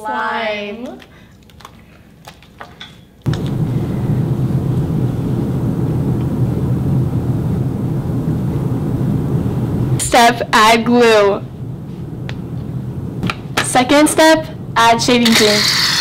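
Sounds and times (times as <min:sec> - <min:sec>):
steady low rumbling: 0:03.3 - 0:15.2.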